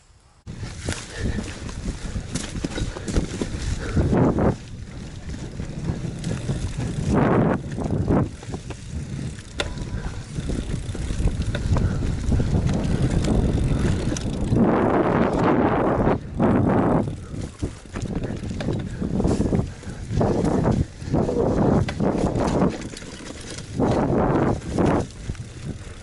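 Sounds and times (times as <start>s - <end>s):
bike rattling and clicking: 0.5s - 26.0s
bike tyres rumbling on dirt: 0.5s - 26.0s
wind noise on microphone: 0.5s - 26.0s.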